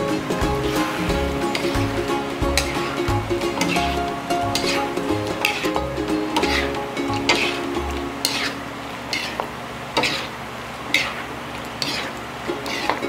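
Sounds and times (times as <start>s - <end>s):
sauce sizzling: 0.0s - 13.0s
utensil scraping metal wok: 0.0s - 13.0s.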